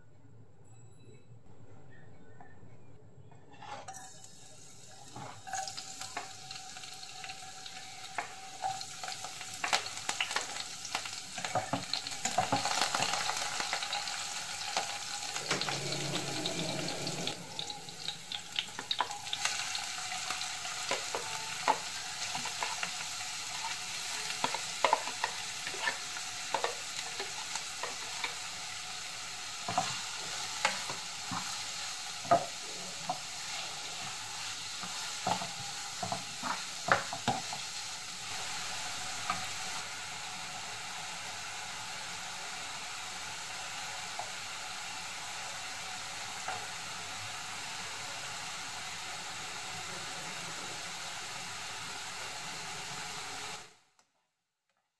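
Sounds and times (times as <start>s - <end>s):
vegetables sizzling in hot oil: 4.1s - 53.8s
spatula stirring in a pan: 18.8s - 39.8s.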